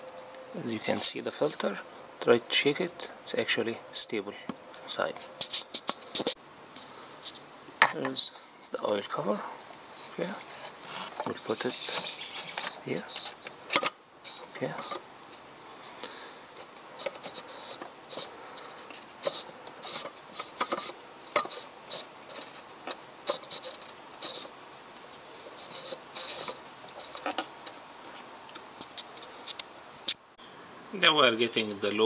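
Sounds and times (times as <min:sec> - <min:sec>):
plastic cap clicking and scraping: 0:16.0 - 0:24.5, 0:25.5 - 0:27.8.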